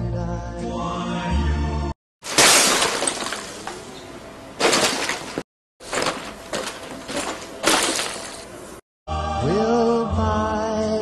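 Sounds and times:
goods crashing and smashing: 2.2s - 8.8s.

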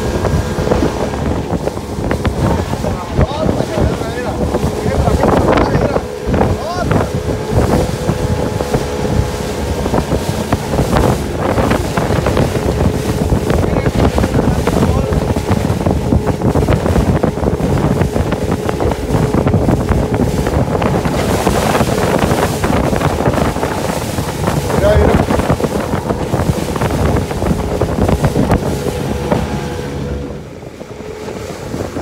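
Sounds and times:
outboard motor running: 0.0s - 32.0s
water rushing around hull: 0.0s - 32.0s
wind buffeting microphone: 0.0s - 32.0s.

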